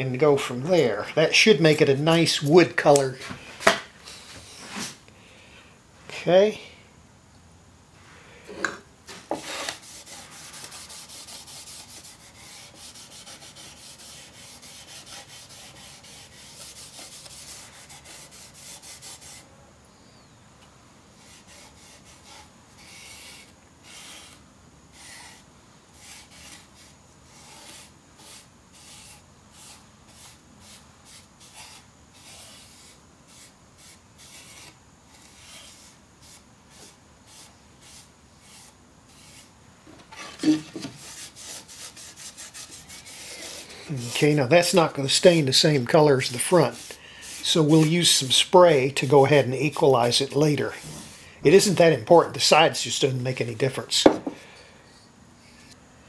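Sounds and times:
cloth scrubbing wood: 40.1s - 52.0s
cloth wiping wood: 40.1s - 52.0s
knocks on wood: 54.0s - 54.4s.

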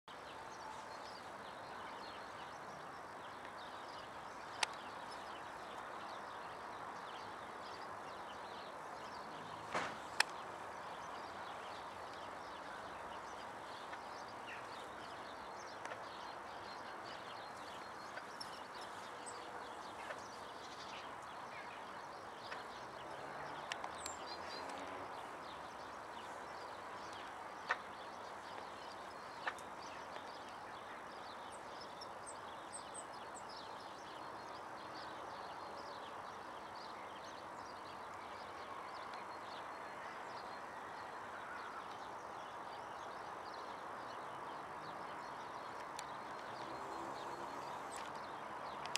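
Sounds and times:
distant birds chirping: 44.6s - 48.9s.

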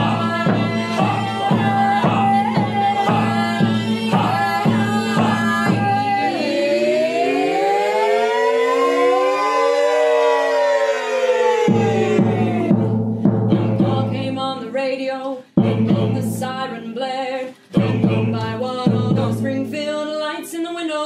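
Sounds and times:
drum beats: 0.0s - 6.5s, 11.4s - 16.9s, 17.7s - 20.0s
people singing: 0.0s - 10.7s, 11.4s - 21.0s.

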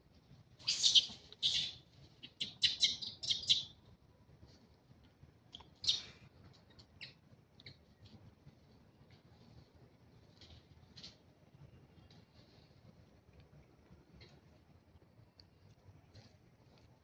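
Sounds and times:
animal chirping calls: 0.6s - 3.7s.

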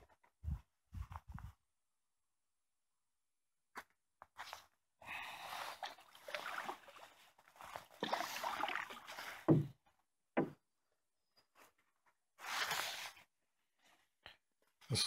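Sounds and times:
paddle water swishing and dripping: 5.2s - 9.8s.

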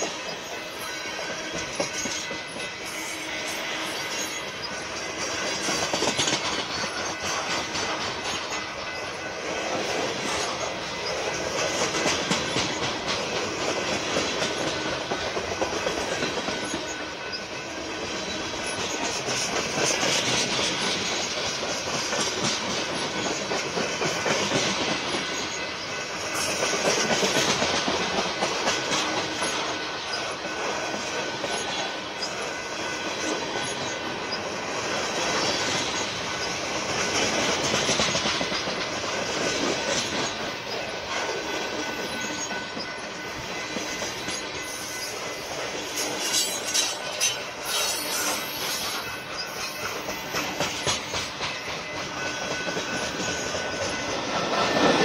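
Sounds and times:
freight train cars rumbling past: 0.0s - 55.0s.

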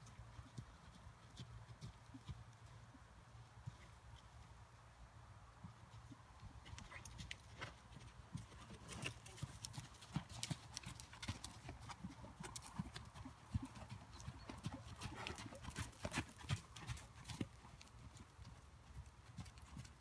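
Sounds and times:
horse hoofbeats on sand: 5.6s - 20.0s.

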